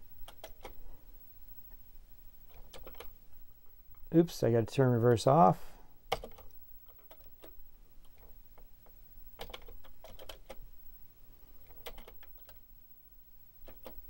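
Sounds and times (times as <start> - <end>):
keyboard keys clicking: 0.2 - 0.8, 2.5 - 3.2, 6.1 - 8.4, 9.4 - 10.6, 11.6 - 12.6, 13.6 - 14.0.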